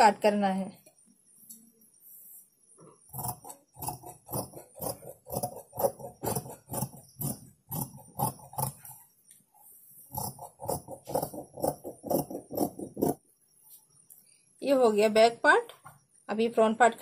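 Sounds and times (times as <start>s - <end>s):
scissors snipping fabric: 3.1s - 8.9s, 10.2s - 13.2s.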